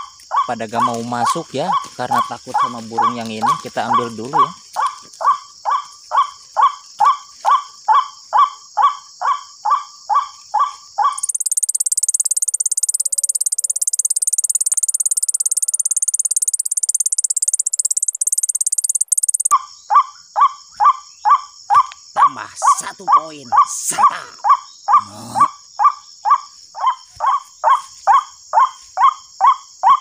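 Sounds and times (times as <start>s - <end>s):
bird croaking calls over loudspeaker: 0.0s - 4.9s, 22.2s - 25.6s
high-pitched pulsing buzz: 11.2s - 19.5s.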